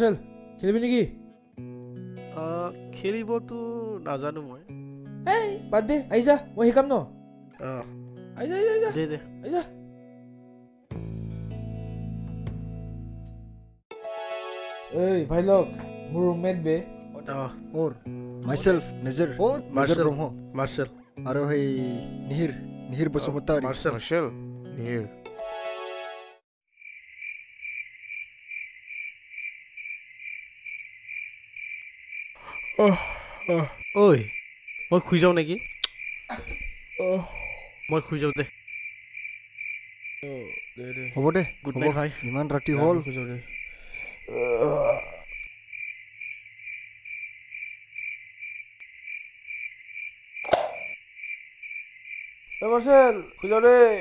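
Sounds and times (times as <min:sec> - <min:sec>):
crickets chirping: 0:26.7 - 0:54.0
short sharp knock: 0:50.5 - 0:50.9.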